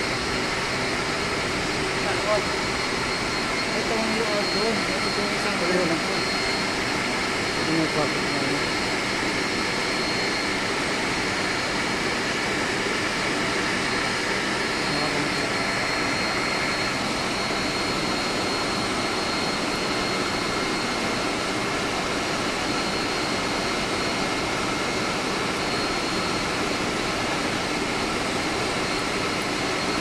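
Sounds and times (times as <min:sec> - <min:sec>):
thin high whine: 0:00.0 - 0:11.7
air-conditioning machinery noise: 0:00.0 - 0:30.0.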